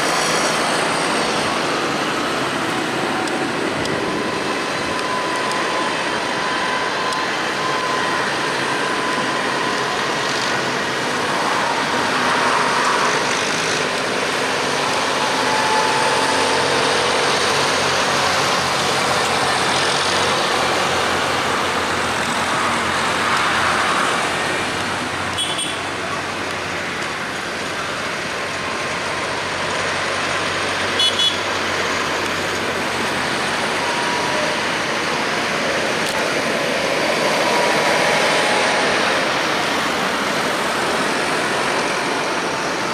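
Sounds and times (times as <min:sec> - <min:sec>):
tractors driving past: 0:00.0 - 0:42.9.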